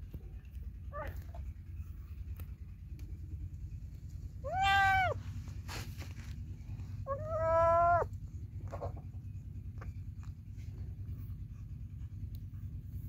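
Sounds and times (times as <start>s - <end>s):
low steady hum: 0.0s - 13.0s
kitten meowing: 4.4s - 5.2s, 7.1s - 8.1s
kitten feeding clicks and rustles: 8.1s - 13.0s.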